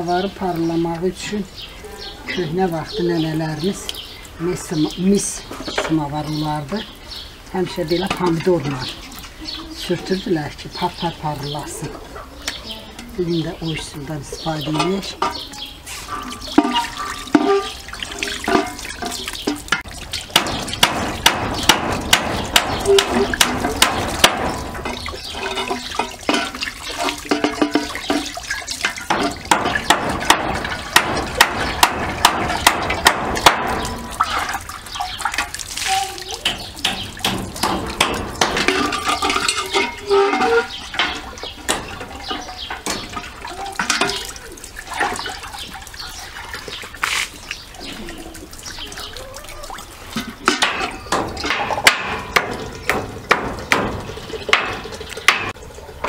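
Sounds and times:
tap water running and splashing: 2.4s - 56.0s
metal samovar knocks and clanks: 12.4s - 35.6s, 36.2s - 46.2s, 50.1s - 55.7s.

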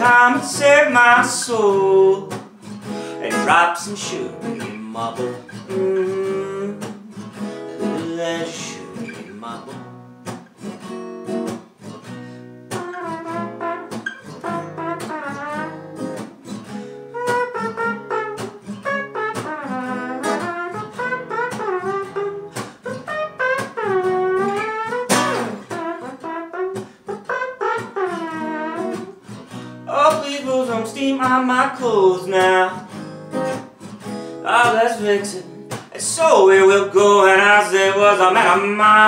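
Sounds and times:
wordless vocal line: 0.0s - 2.3s
acoustic blues guitar: 0.0s - 39.0s.

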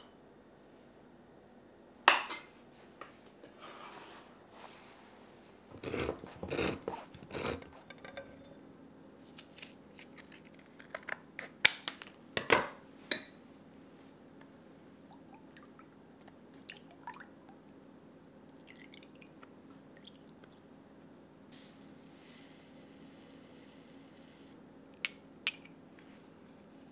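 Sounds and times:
granules pouring into glass bowl: 21.6s - 24.6s.

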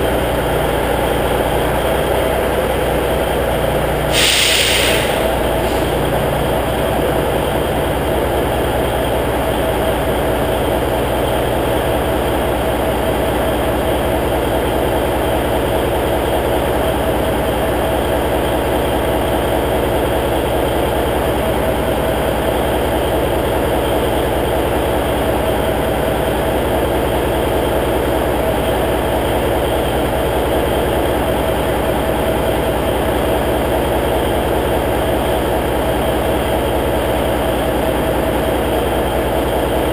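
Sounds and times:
diesel engine idling: 0.0s - 39.9s
high whine: 4.1s - 7.6s.

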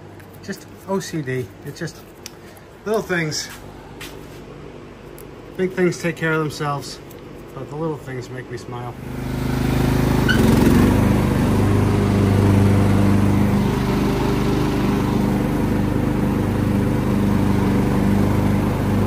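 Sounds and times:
riding mower engine running: 8.9s - 19.0s.

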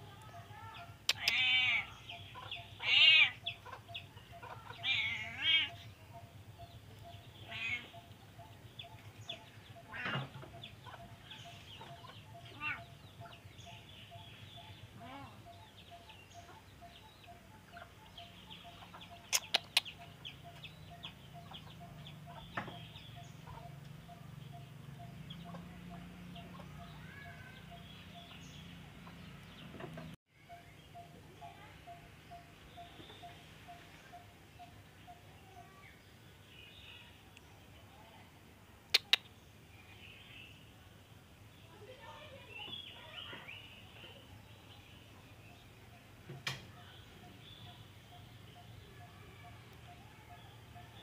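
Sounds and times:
animal calls with wavering pitch: 1.1s - 9.0s.

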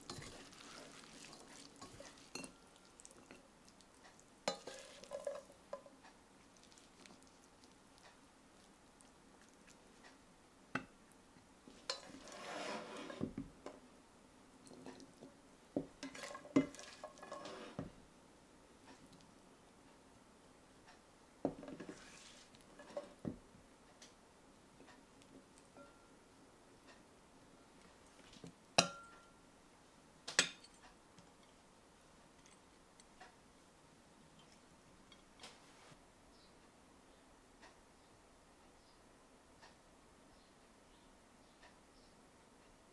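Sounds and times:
spatula scraping a pan: 0.0s - 2.6s, 4.5s - 5.5s, 11.8s - 13.3s, 16.0s - 17.9s, 21.6s - 23.2s
utensil clinking on ceramic bowl: 0.1s - 3.4s, 4.5s - 5.9s, 28.8s - 29.3s.

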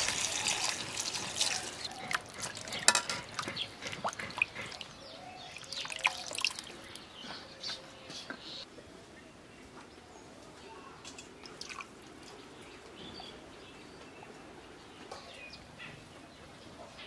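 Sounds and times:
water splashing in a steel bowl: 0.0s - 7.0s, 11.4s - 12.0s.

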